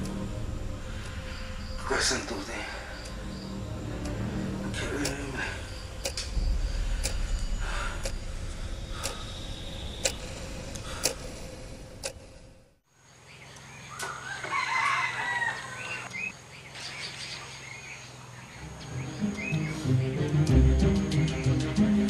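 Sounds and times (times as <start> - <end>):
sharp ticks: 0.0 - 12.5
rooster crowing: 14.1 - 16.1.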